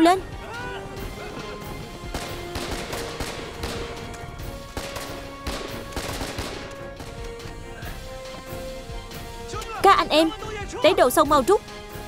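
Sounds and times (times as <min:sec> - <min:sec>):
film music with held notes: 0:00.0 - 0:12.0
machine-gun and rifle shots: 0:02.1 - 0:07.1.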